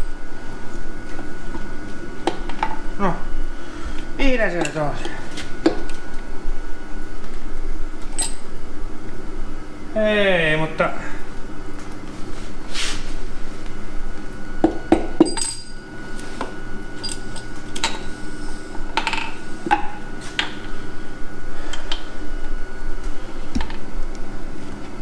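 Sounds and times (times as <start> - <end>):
steady hum: 0.0 - 25.0
tools clinking on metal: 8.2 - 8.4, 15.2 - 15.8, 17.0 - 18.0.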